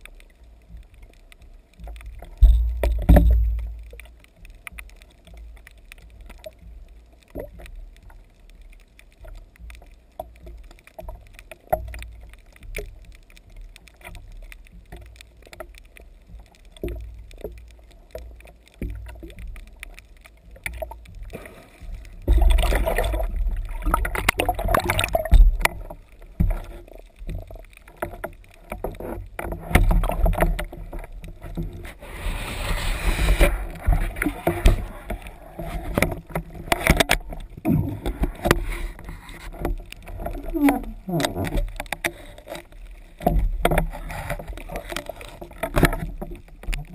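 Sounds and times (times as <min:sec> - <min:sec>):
muffled underwater sloshing: 0:00.0 - 0:46.9
small knocks: 0:01.8 - 0:08.2.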